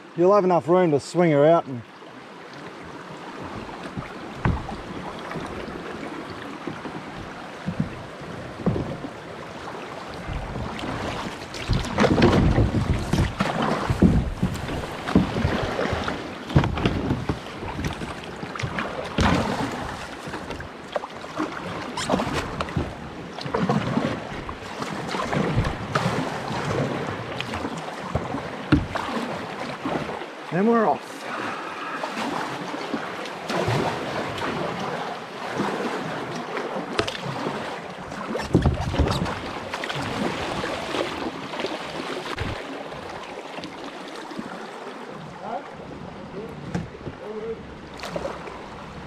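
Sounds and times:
fast-flowing river water: 0.0s - 49.0s
paddle strokes splashing: 0.8s - 49.0s
wind buffeting microphone: 10.1s - 18.1s.

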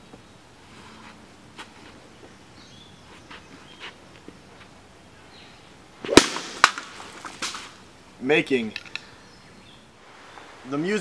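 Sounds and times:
wooden stick whacking: 6.0s - 7.7s.

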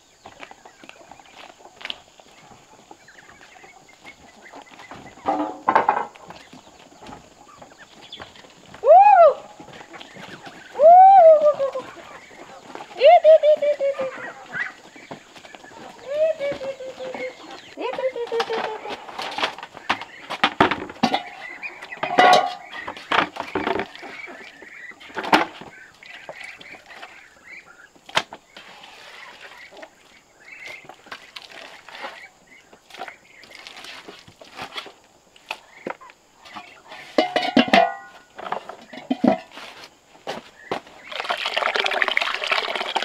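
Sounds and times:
scraping and knocking in a pot: 20.5s - 23.9s, 37.0s - 39.7s
metal pot lid clanking: 21.0s - 21.4s, 22.0s - 22.7s, 37.2s - 38.1s, 38.9s - 39.5s.

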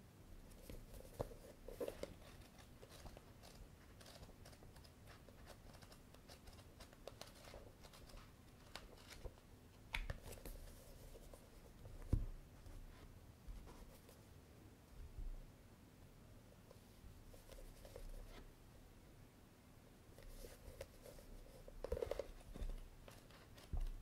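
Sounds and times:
book pages flipping: 0.5s - 12.2s, 20.2s - 24.0s.

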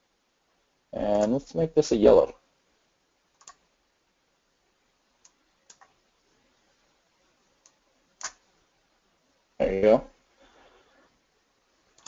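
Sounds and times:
computer mouse clicks: 3.3s - 3.7s, 5.2s - 6.0s, 7.6s - 8.4s.

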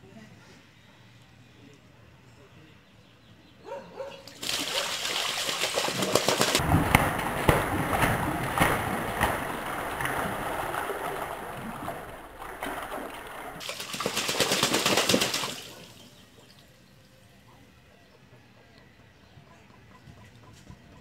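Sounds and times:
ducks splashing in water: 4.2s - 16.6s.

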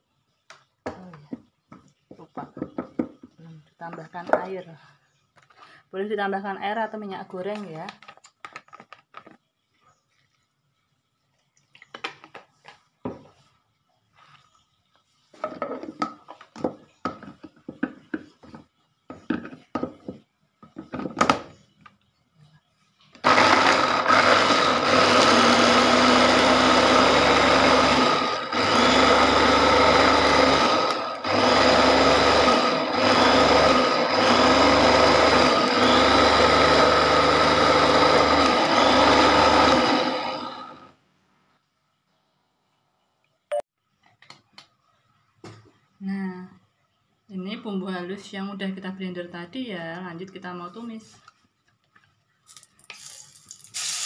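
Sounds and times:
electric chopper motor whining: 23.2s - 40.9s.

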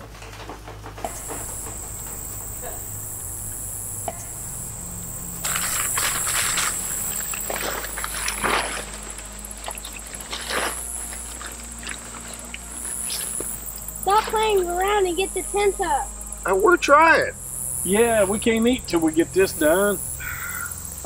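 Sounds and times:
crickets chirping: 0.0s - 21.0s
tent fabric rustling: 5.4s - 13.4s.

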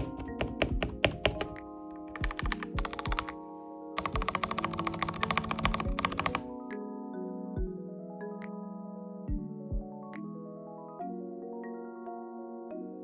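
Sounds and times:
mechanical keyboard typing: 0.0s - 3.4s, 4.0s - 6.5s
spacebar tapping: 0.0s - 3.4s
soft background music: 0.0s - 13.0s.

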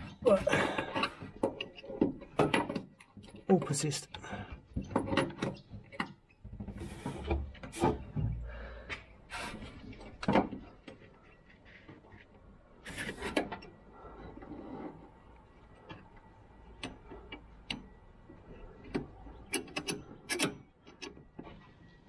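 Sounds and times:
metal clicks and taps: 15.9s - 17.9s.

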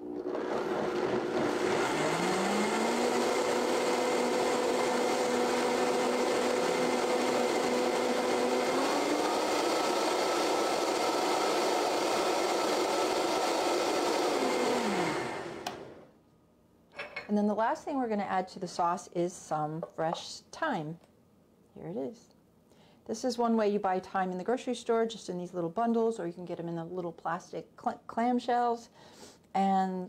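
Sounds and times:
blender motor running: 0.0s - 16.0s.

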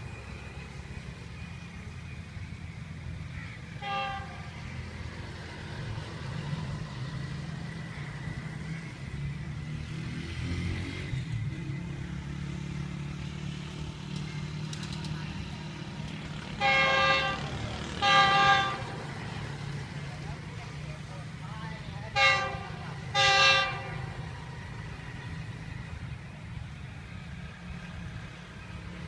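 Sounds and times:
locomotive engine rumble: 0.0s - 10.0s, 10.8s - 29.0s
train horn toot: 3.8s - 4.6s, 16.5s - 19.0s, 22.1s - 24.2s.

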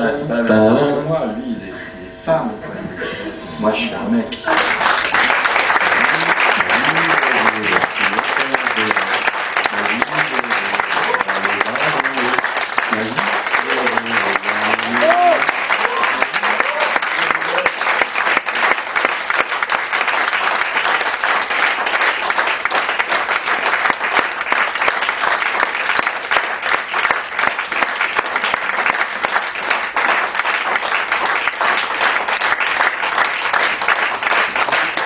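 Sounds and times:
audience applauding: 2.8s - 35.0s.

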